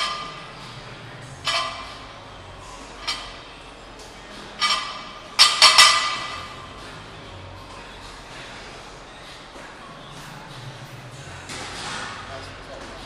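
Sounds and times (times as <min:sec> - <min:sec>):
weight plates clanking on barbell: 0:01.4 - 0:02.0.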